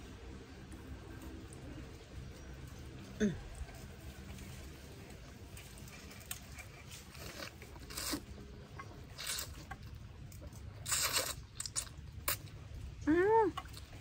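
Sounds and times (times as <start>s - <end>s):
person slurping and chewing: 5.9s - 12.5s.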